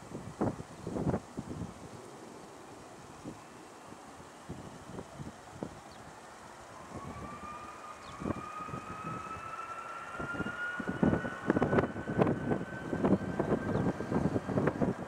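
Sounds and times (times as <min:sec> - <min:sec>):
jet engines whining: 0:02.0 - 0:15.0
gusty low rumble: 0:10.2 - 0:15.0.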